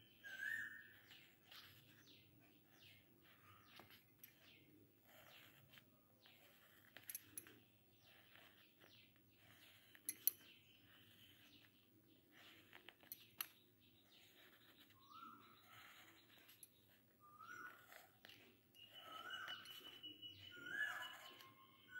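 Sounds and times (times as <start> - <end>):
pen scratching on paper: 0.2 - 21.9.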